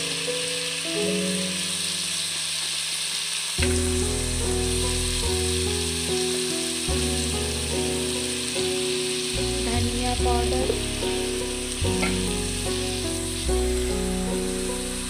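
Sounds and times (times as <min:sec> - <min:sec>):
vegetables sizzling in oil: 0:00.0 - 0:15.0
background music: 0:03.6 - 0:15.0.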